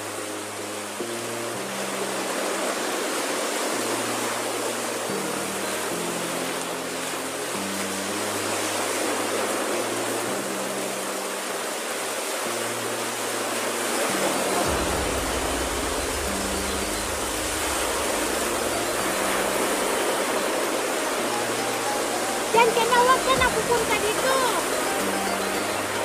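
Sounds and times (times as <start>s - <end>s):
waves washing up a beach: 0.0s - 26.0s
low rumble: 14.7s - 19.9s.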